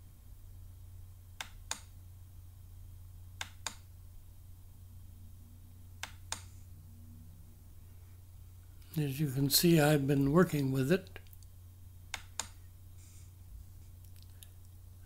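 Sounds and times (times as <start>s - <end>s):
steady low hum: 0.0s - 15.0s
computer mouse clicks: 1.4s - 1.9s, 3.4s - 3.9s, 6.0s - 6.6s, 12.1s - 12.6s.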